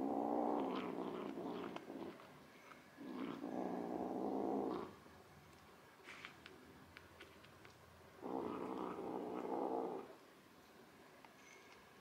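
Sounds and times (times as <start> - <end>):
kitten growling low: 0.0 - 2.2, 3.0 - 5.0, 8.2 - 10.2.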